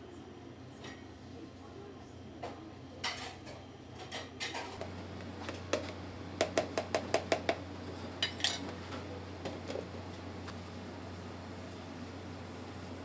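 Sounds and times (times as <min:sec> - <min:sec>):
steady low hum: 0:00.0 - 0:13.0
utensils clinking against dishes: 0:03.0 - 0:04.8, 0:07.9 - 0:09.1.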